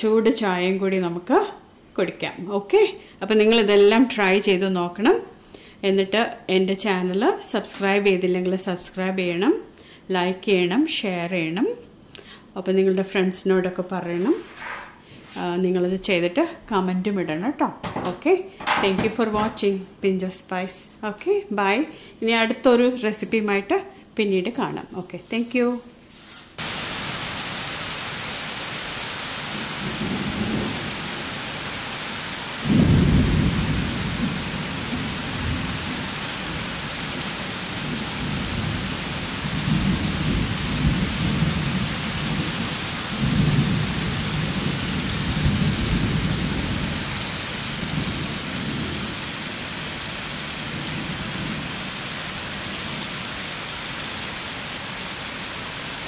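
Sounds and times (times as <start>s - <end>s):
heavy rain on pavement: 26.6s - 56.0s
rolling thunder rumbles: 29.5s - 31.3s, 32.6s - 49.2s
thunder clap: 32.6s - 36.0s.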